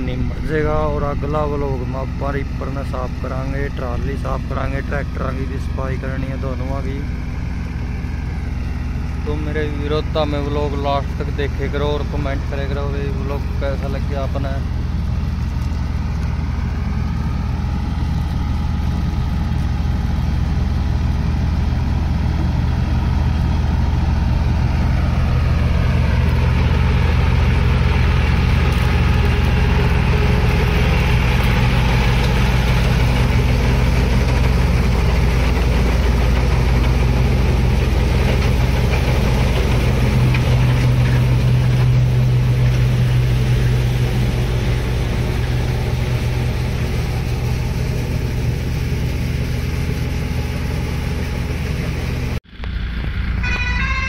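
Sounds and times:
tractor engine running: 0:00.0 - 0:54.0.

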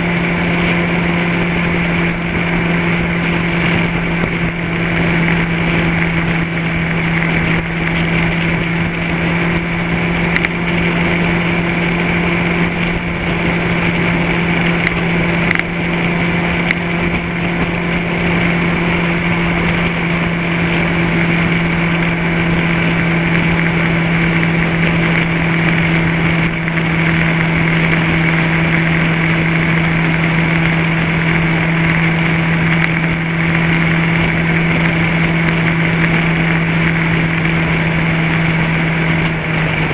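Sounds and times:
high engine whine: 0:00.0 - 0:39.9
vehicle engine droning: 0:00.0 - 0:39.9.

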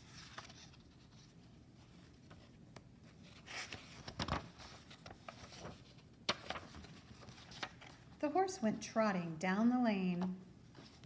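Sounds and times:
page flapping: 0:00.0 - 0:01.3, 0:03.2 - 0:08.0
paper page turning: 0:00.0 - 0:01.5, 0:03.0 - 0:08.1.

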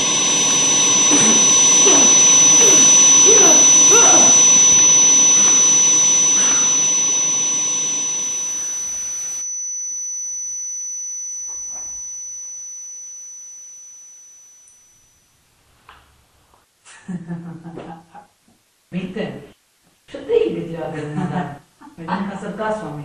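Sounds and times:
high-pitched ringing tone: 0:00.0 - 0:15.3.

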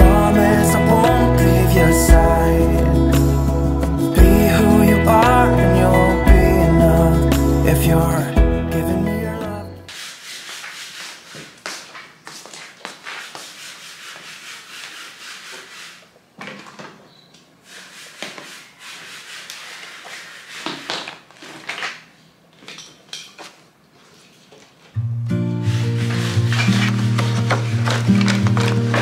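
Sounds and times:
paper rustling and sliding: 0:09.9 - 0:16.9, 0:17.6 - 0:22.3, 0:23.4 - 0:25.0, 0:25.6 - 0:29.0.

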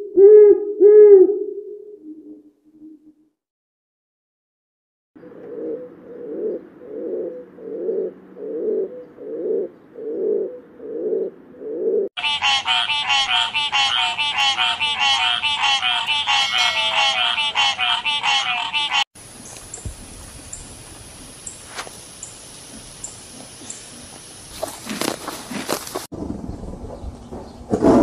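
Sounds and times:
pigeon cooing: 0:00.0 - 0:03.1, 0:05.2 - 0:12.4.

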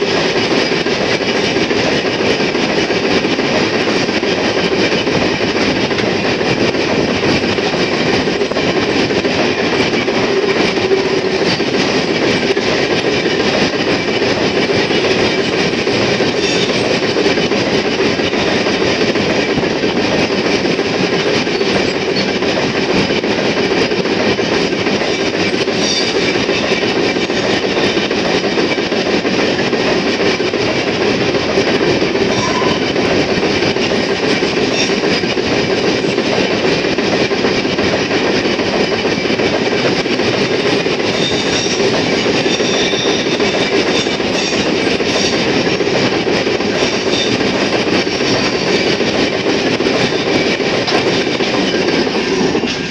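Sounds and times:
freight train rumbling and rattling: 0:00.0 - 0:52.9
high wheel squeals: 0:32.3 - 0:33.0.

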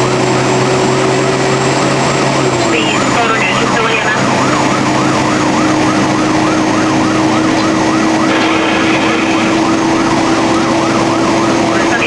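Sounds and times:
fire engine siren yelping: 0:00.0 - 0:12.0
steady low tone: 0:08.3 - 0:10.6.

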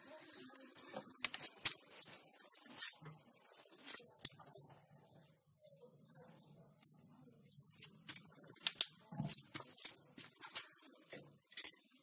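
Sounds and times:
burning wood crackling and popping: 0:00.6 - 0:04.4, 0:07.8 - 0:11.7.

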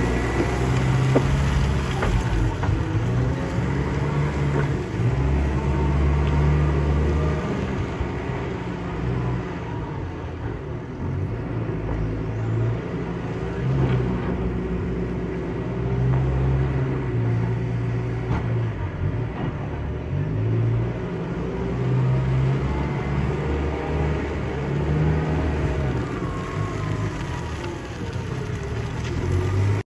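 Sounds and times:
diesel engine rumbling: 0:00.0 - 0:29.9.

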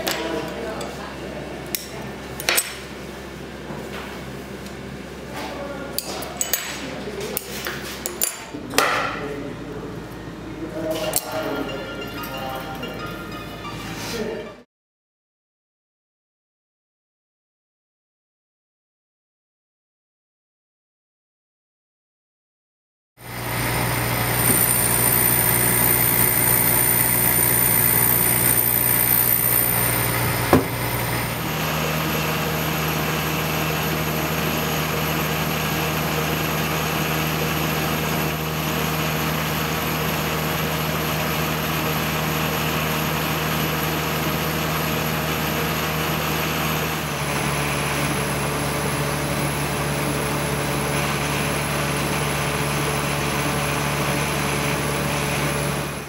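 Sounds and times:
laser engraver mechanical hum: 0:23.2 - 0:35.5.

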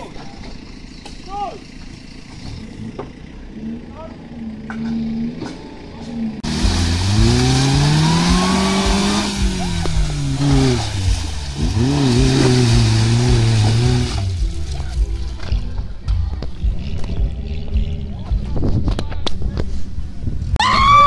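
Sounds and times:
car engine revving hard: 0:06.4 - 0:14.8.

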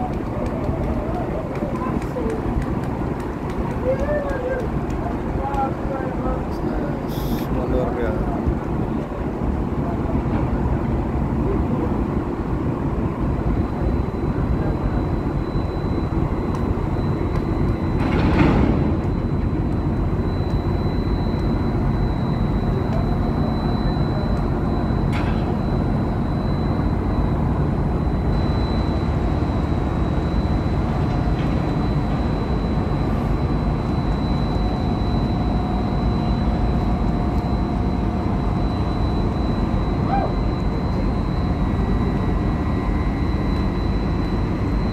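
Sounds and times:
diesel engine low rumble: 0:00.0 - 0:44.9
faint high whine: 0:11.0 - 0:44.9.

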